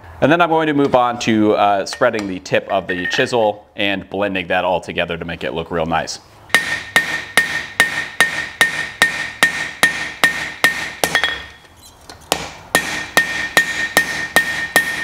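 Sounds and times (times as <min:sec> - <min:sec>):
anvil ringing: 0:06.5 - 0:11.6, 0:12.8 - 0:15.0
hammer striking hot metal: 0:06.5 - 0:11.6, 0:12.3 - 0:15.0.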